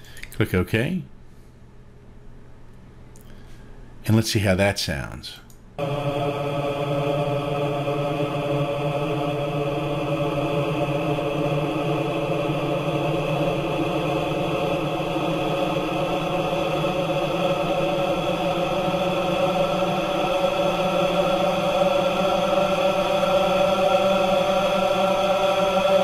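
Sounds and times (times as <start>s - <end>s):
stretched voice drone: 5.8s - 26.0s.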